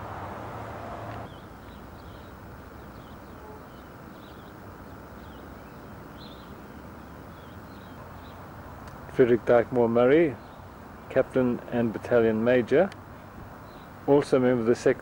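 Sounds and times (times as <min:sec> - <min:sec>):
loud rushing noise: 0:00.0 - 0:01.2
steady background hiss: 0:00.0 - 0:15.0
small birds chirping: 0:01.1 - 0:12.4, 0:13.0 - 0:14.4.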